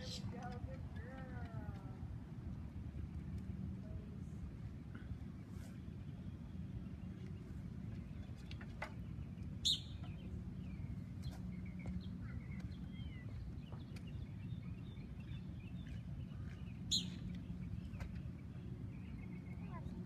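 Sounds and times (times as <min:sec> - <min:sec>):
small birds chirping: 0:04.9 - 0:20.0.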